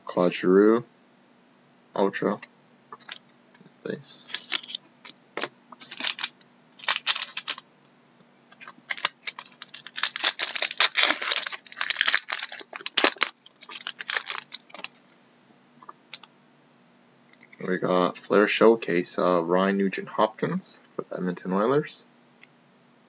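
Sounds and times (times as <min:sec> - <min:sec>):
cards being shuffled: 0:04.2 - 0:04.8, 0:05.4 - 0:07.6, 0:08.5 - 0:15.0.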